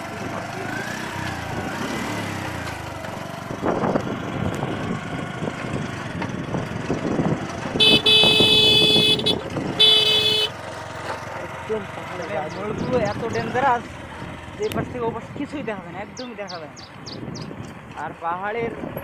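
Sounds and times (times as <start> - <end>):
motorcycle engine: 0.0 - 19.0
motorcycle horn honking: 7.8 - 10.6.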